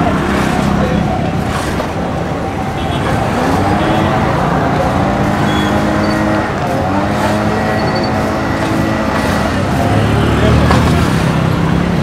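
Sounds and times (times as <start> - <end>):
vehicle engines running close by: 0.0 - 12.0.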